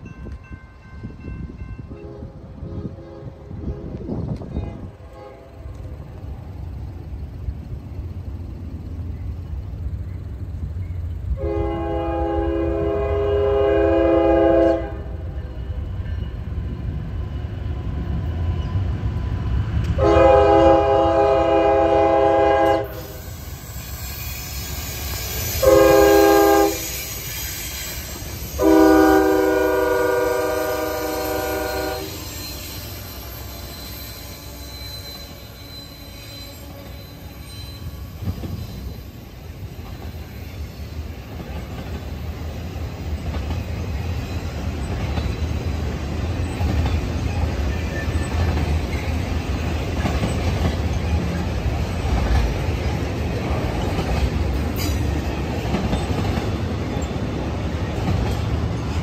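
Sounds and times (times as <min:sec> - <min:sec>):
low rumble of locomotives: 0:00.0 - 0:59.0
locomotive horn: 0:01.8 - 0:05.9, 0:11.3 - 0:15.4, 0:20.0 - 0:23.2, 0:25.6 - 0:27.0, 0:28.4 - 0:32.9, 0:34.1 - 0:38.2.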